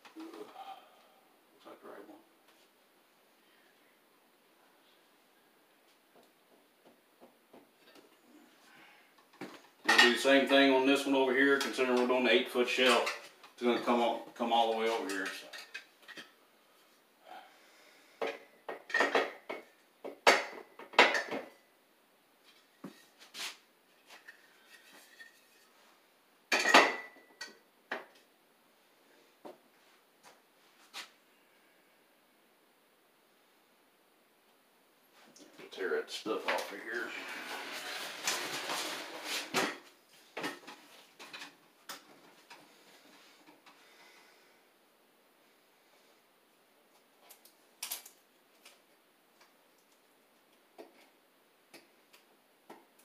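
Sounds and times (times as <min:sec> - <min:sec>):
shelving parts rustling and knocking: 0:36.4 - 0:43.6.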